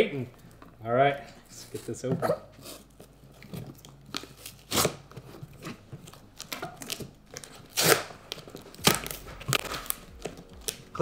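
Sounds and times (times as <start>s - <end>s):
cardboard scraping and rustling: 1.6s - 10.5s
packing tape being torn: 2.5s - 11.0s.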